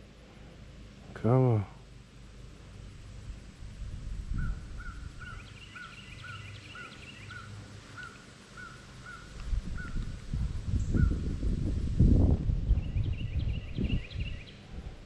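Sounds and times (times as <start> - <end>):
low rumble: 1.9 - 5.4, 9.4 - 15.0
bird calling: 4.3 - 10.1.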